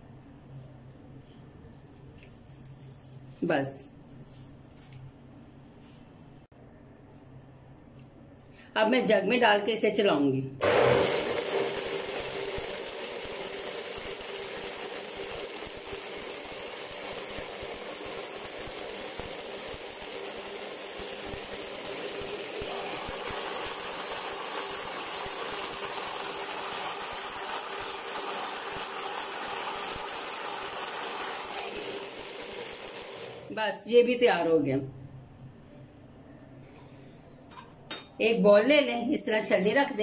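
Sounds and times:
electric blender grinding: 10.6s - 33.5s.

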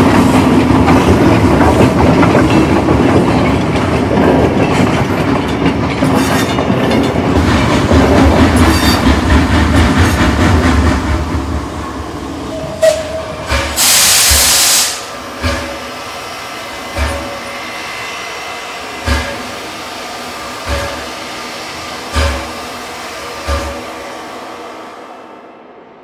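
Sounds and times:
train rumbling on rails: 0.0s - 26.0s
loud hiss burst: 13.6s - 15.2s.

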